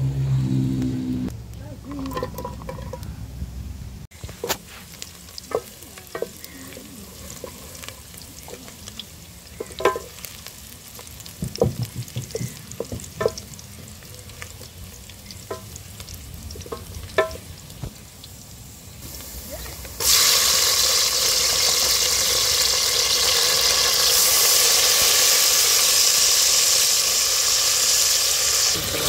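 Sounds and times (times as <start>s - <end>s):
onions sizzling in oil: 4.1s - 29.0s
wooden paddle knocking on pot: 11.4s - 13.4s, 16.7s - 17.4s.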